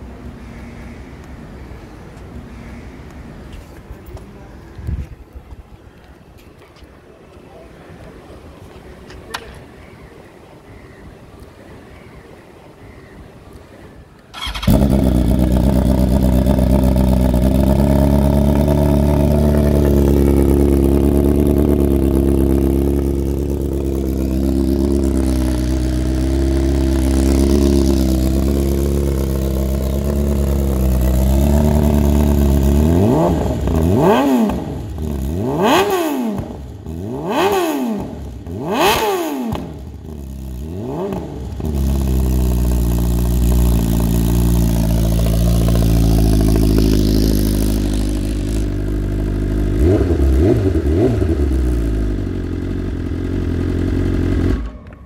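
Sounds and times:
motorcycle engine idling and revving: 14.3 - 55.0.

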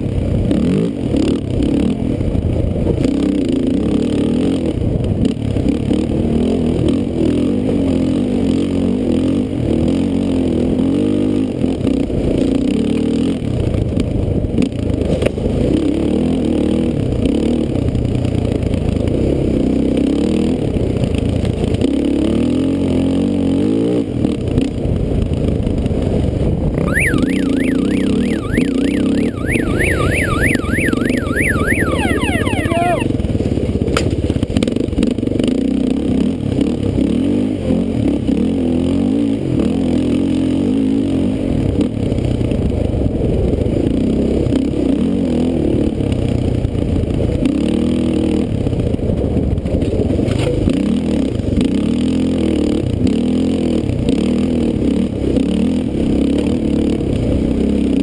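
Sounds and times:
dirt bike engine revving: 26.8 - 33.1
high warbling whine: 26.8 - 33.1.

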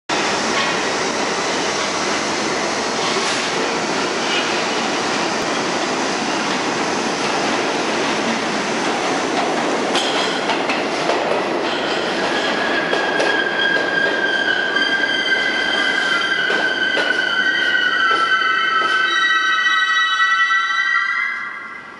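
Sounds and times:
subway train wheels rumbling: 0.1 - 21.9
high brake squeal: 12.0 - 21.9.

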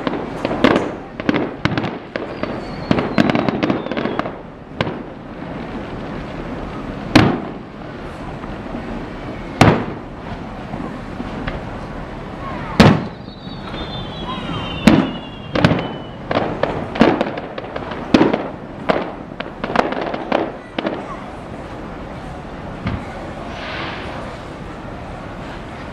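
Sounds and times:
fireworks bursting: 0.0 - 25.9
falling whistle: 2.3 - 4.2, 13.0 - 16.2.

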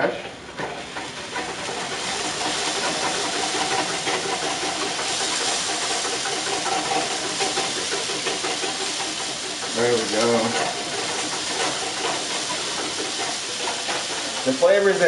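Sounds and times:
potatoes sizzling in frying pan: 0.8 - 15.0.

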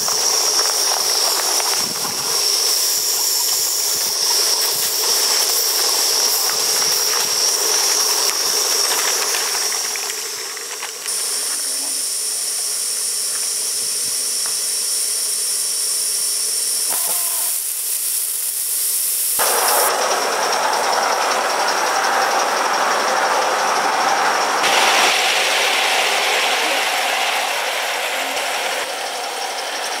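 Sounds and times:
wheels rattling on track: 0.0 - 12.0, 19.4 - 30.0
steam hissing: 0.0 - 30.0.

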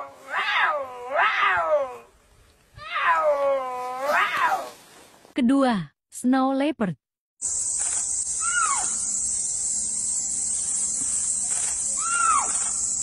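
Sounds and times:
insects hissing: 7.4 - 13.0.

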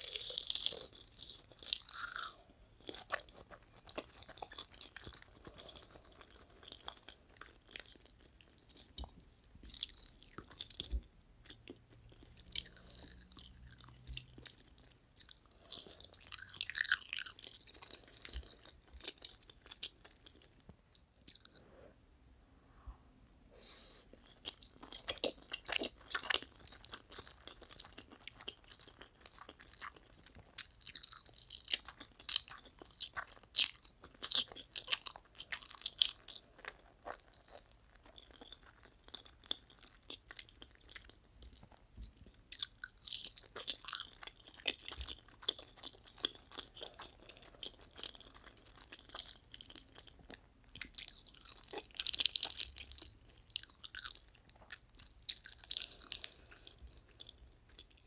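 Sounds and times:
wet chewing and smacking: 0.0 - 21.6, 24.1 - 58.0.

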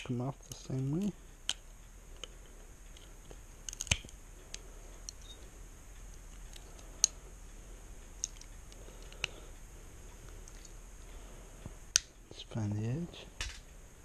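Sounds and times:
pliers clicking and snapping metal: 3.7 - 4.1.

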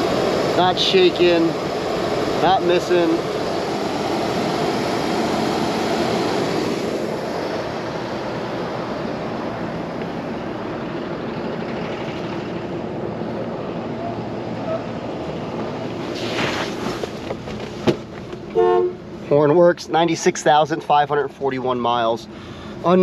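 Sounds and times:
car engine idling: 0.0 - 16.1.

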